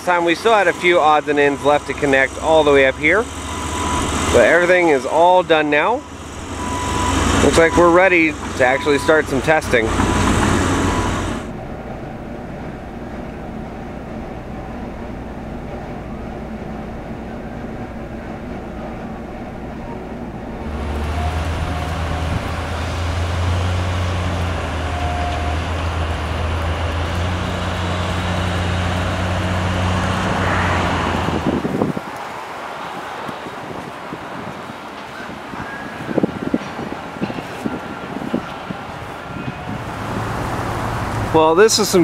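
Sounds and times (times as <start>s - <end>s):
low engine drone: 0.0s - 31.6s.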